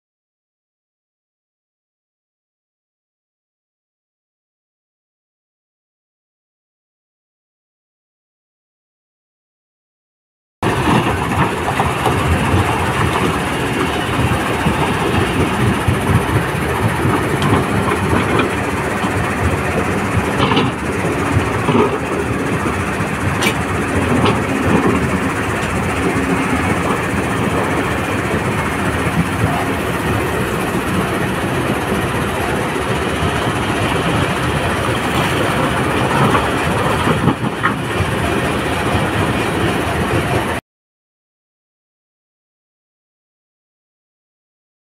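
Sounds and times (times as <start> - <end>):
excavator diesel engine: 10.6 - 40.6.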